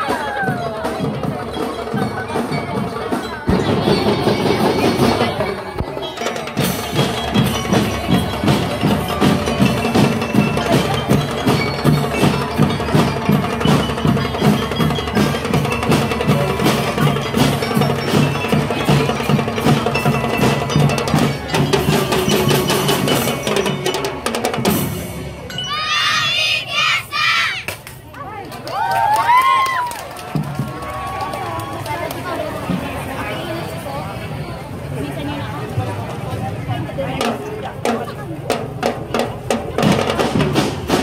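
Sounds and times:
bell lyres ringing melody: 0:00.7 - 0:27.5
snare and bass drums beating: 0:06.5 - 0:25.1, 0:37.2 - 0:41.0.

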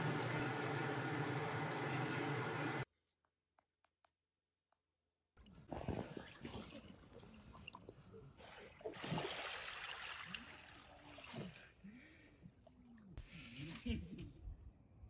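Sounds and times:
water trickling and splashing: 0:05.8 - 0:11.6.

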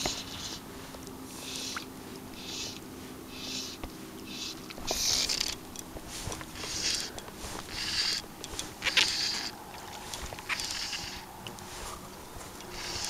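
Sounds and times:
fly line rasping swish: 0:00.0 - 0:13.0.

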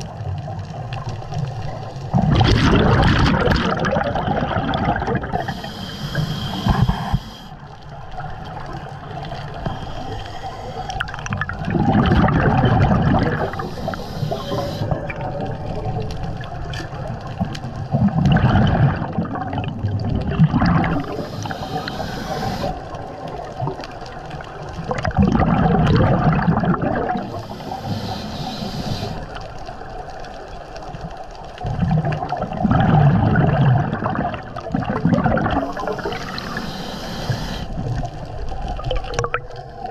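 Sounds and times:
exhaled bubbles rushing: 0:00.0 - 0:05.7, 0:08.0 - 0:27.9, 0:31.6 - 0:36.6, 0:37.7 - 0:39.9
regulator inhalation hiss: 0:05.3 - 0:07.6, 0:09.2 - 0:11.1, 0:13.3 - 0:15.1, 0:21.0 - 0:23.0, 0:27.3 - 0:29.4, 0:35.6 - 0:37.9.

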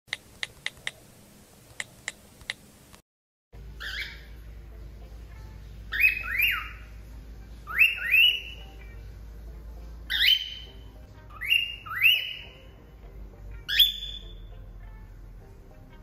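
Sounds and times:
cockatiel whistling: 0:03.8 - 0:04.4, 0:05.9 - 0:06.9, 0:07.6 - 0:08.8, 0:10.1 - 0:12.6, 0:13.7 - 0:14.5.

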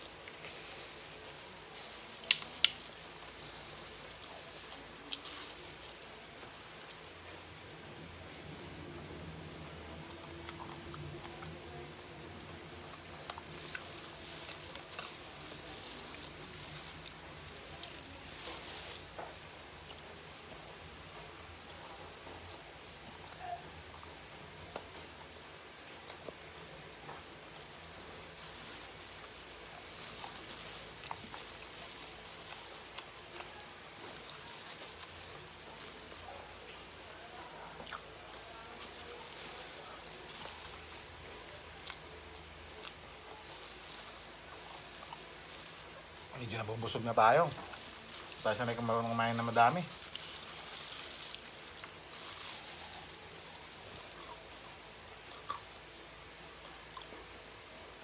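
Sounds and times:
fried chicken crackling: 0:00.0 - 0:58.0
small clicks and snaps: 0:01.8 - 0:05.6.

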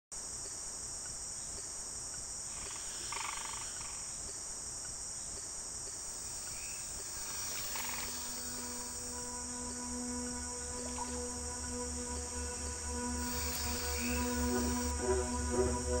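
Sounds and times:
high-pitched insect chorus: 0:00.2 - 0:16.0
short pulsed animal call: 0:12.4 - 0:15.0.

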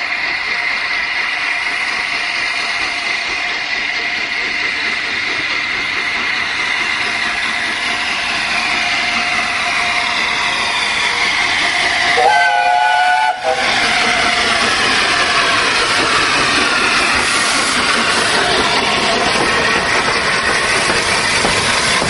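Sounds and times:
steam hissing: 0:00.0 - 0:22.0
steam locomotive whistle: 0:12.1 - 0:13.8.

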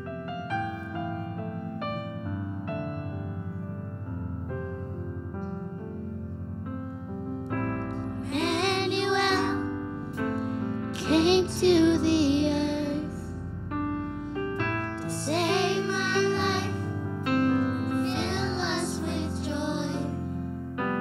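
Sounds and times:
keyboard chords: 0:00.0 - 0:21.0
children's choir singing: 0:08.2 - 0:09.8, 0:11.0 - 0:13.2, 0:15.0 - 0:20.4.

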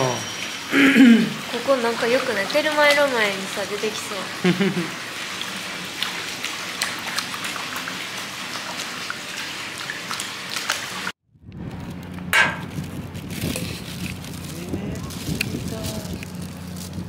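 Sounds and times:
water splashing and dripping: 0:00.0 - 0:11.2.

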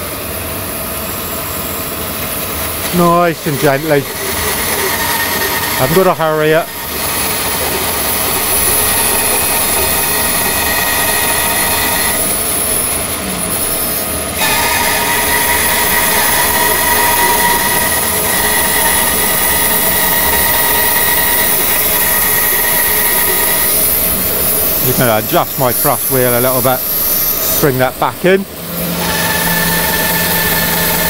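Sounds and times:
dust extractor rushing: 0:02.6 - 0:13.4
bandsaw cutting through log: 0:02.8 - 0:31.0.

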